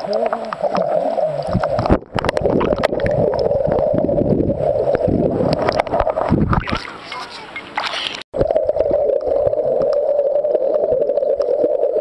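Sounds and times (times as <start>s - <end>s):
underwater churning and gurgling: 0.0s - 7.0s, 8.0s - 12.0s.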